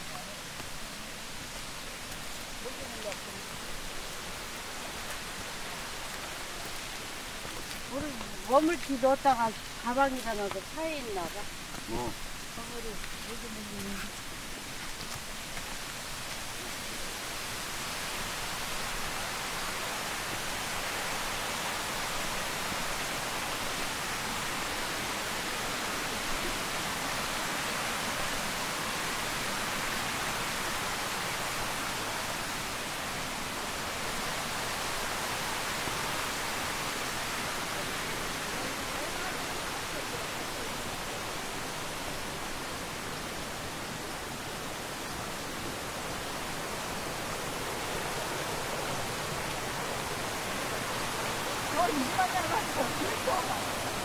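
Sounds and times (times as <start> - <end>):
steady outdoor rushing noise: 31.4 - 54.0.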